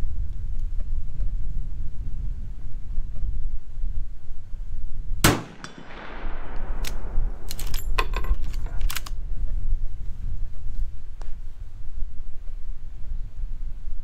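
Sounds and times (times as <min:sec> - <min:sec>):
rifle shot with echo: 0:05.2 - 0:07.7
rifle lever metallic clicks: 0:06.5 - 0:09.2.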